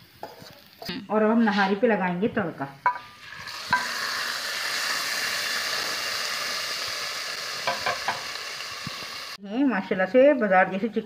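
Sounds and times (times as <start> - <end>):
hot oil sizzling: 0.0 - 0.9, 2.8 - 9.4.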